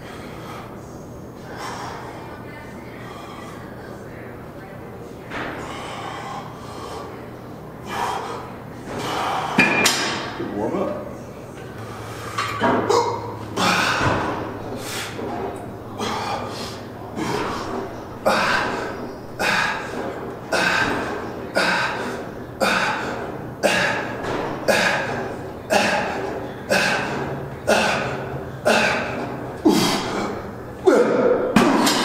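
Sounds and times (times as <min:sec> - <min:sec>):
heavy forceful breathing: 0:00.0 - 0:03.8, 0:05.4 - 0:10.4, 0:11.7 - 0:32.0.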